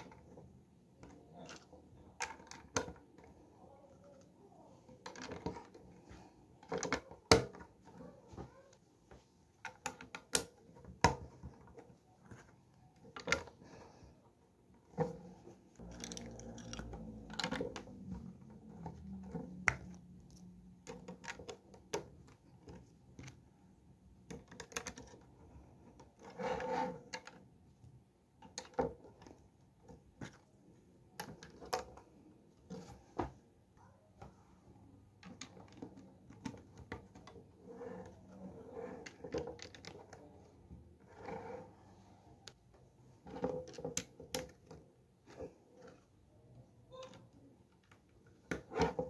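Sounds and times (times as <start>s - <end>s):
plastic pieces rubbing and scraping: 15.0s - 21.6s
plastic bricks clicking together: 15.8s - 18.0s.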